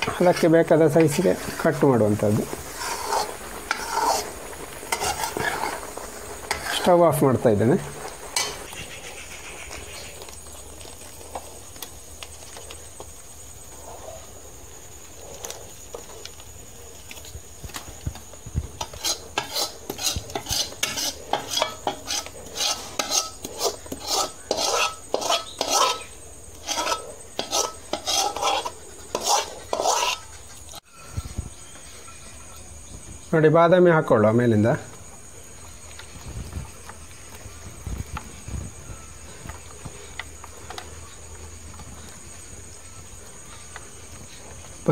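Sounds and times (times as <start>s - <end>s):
metal spatula scraping metal pan: 0.0s - 9.4s, 18.8s - 31.2s.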